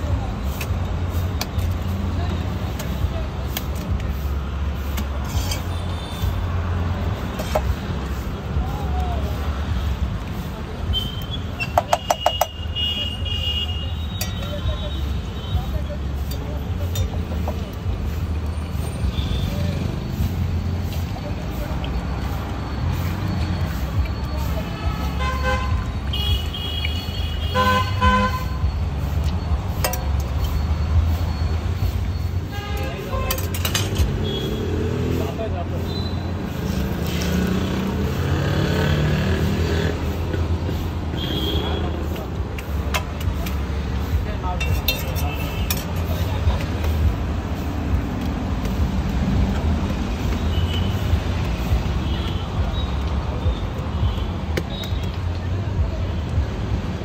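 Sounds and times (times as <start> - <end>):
street traffic rumbling: 0.0 - 57.0
vehicle horns honking: 10.9 - 15.8, 24.5 - 28.8, 32.4 - 34.8, 41.1 - 42.0, 50.4 - 51.2.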